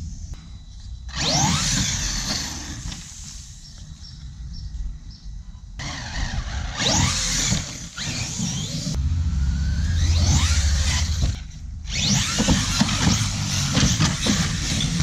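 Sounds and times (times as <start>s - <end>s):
electric motor whining: 5.8s - 15.0s
tyres spinning on dirt: 5.8s - 15.0s.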